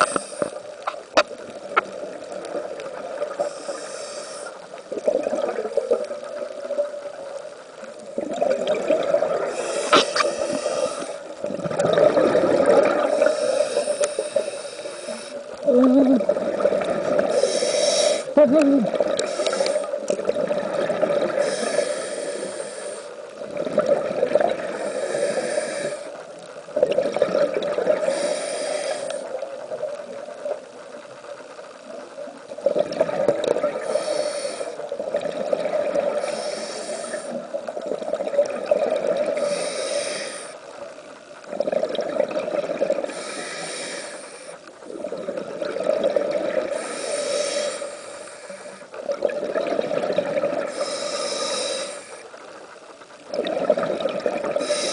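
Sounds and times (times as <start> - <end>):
scuba diver breathing underwater: 0.0 - 0.7, 3.2 - 5.6, 8.8 - 26.2, 26.8 - 29.4, 32.7 - 40.7, 41.6 - 52.4, 53.4 - 54.9.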